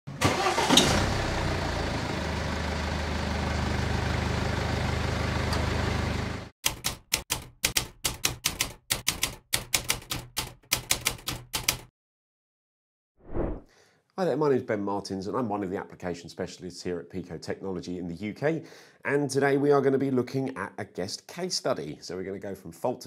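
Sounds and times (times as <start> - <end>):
engine running: 0.2 - 6.5
typewriter keystrokes: 6.6 - 11.9.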